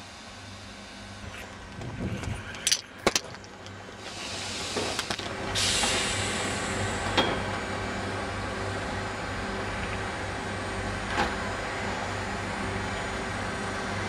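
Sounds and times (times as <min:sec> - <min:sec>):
train low hum: 0:00.0 - 0:14.0
compressed air hiss: 0:04.0 - 0:07.0.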